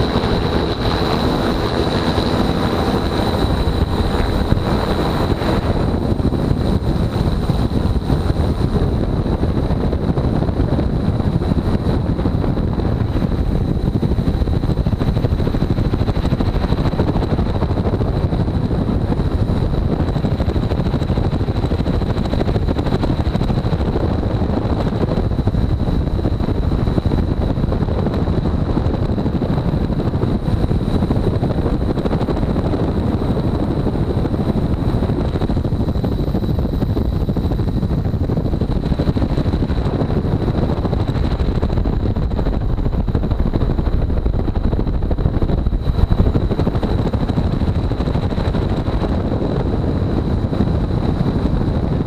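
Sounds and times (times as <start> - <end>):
high-pitched whine: 0.0 - 19.8
helicopter rotor and engine rumble: 0.0 - 52.0.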